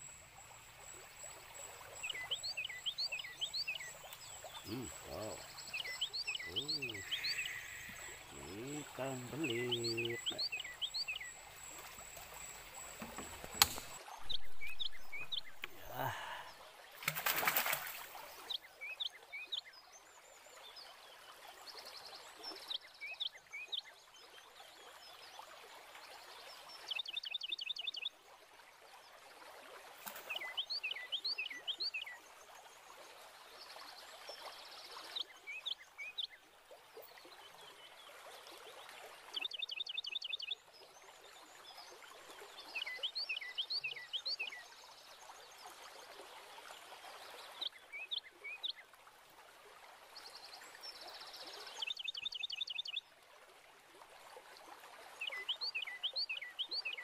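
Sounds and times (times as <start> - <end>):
bird chirping: 0.0 - 16.5
running water: 0.0 - 19.4, 28.1 - 57.0
sharp click: 13.5 - 13.9.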